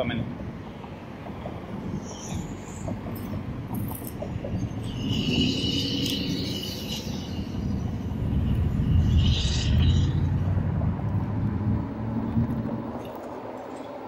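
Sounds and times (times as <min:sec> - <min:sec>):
engines rumbling: 0:00.0 - 0:14.0
vehicle passing: 0:05.2 - 0:13.5.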